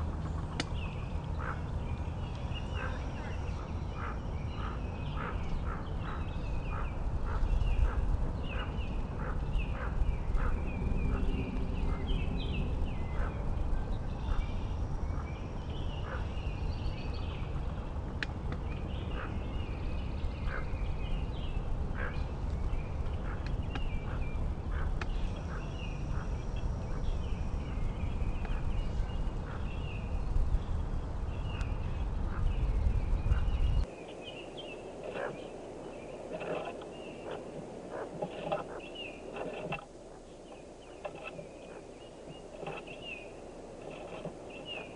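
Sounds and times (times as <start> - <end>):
wind rumble on microphone: 0.0 - 44.9
ducklings peeping: 2.3 - 12.1, 35.0 - 35.5.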